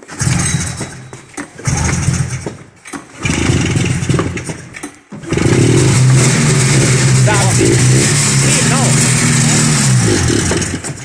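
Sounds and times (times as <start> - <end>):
snowmobile engine running: 5.3 - 10.9.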